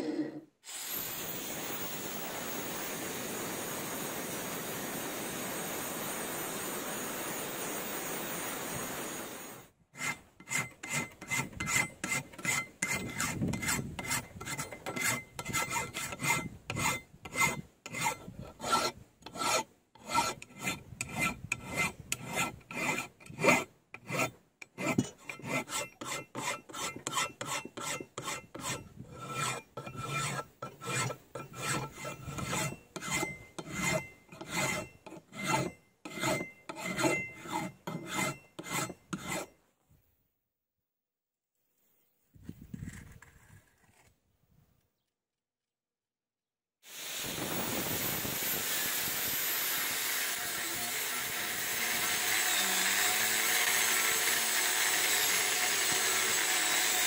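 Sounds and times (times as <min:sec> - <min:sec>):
metal file rasping on steel: 0:09.9 - 0:39.6, 0:48.4 - 0:57.0.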